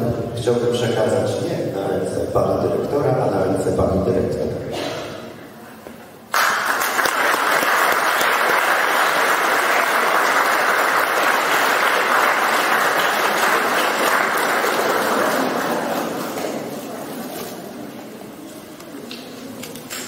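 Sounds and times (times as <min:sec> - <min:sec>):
audience applauding: 0:06.3 - 0:16.8.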